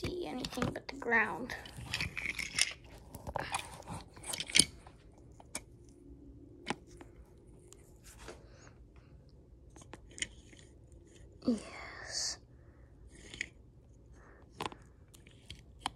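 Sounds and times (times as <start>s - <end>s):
phone handling rustles and clicks: 1.6s - 5.8s.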